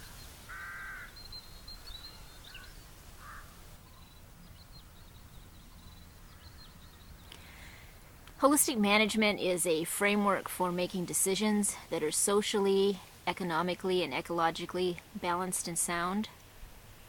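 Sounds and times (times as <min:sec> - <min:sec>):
high chirps of small birds: 0:00.0 - 0:08.0.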